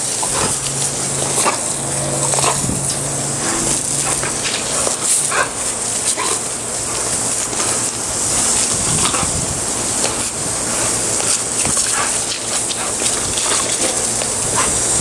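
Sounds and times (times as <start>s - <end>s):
dog snapping vocal sounds: 0.1s - 6.5s, 11.2s - 14.9s.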